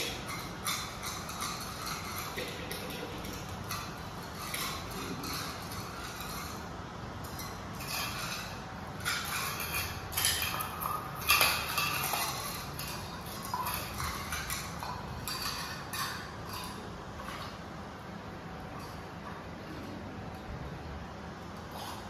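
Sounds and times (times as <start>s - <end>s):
metal bowls clinking and knocking: 0.0s - 17.6s.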